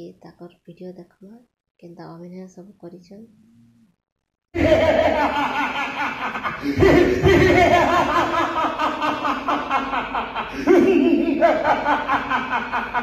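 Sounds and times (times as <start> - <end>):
man laughing theatrically: 4.6 - 13.0.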